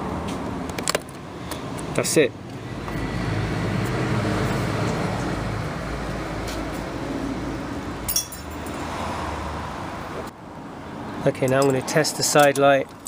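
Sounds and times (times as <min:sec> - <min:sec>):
bright metallic clink: 0:08.1 - 0:08.8.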